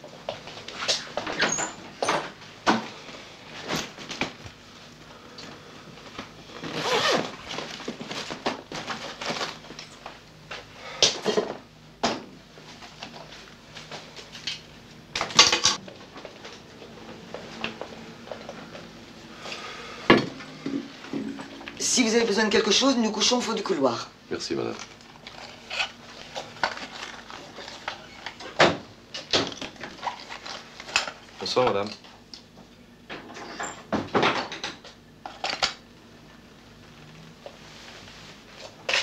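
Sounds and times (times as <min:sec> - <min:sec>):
bag handling clicks and rustles: 0:06.0 - 0:10.0.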